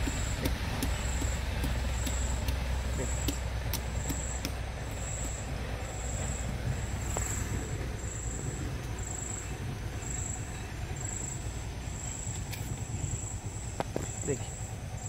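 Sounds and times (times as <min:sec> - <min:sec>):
stone striking tree bark: 0:00.0 - 0:05.4
insect chirping: 0:00.0 - 0:15.0
low rumble: 0:00.0 - 0:15.0.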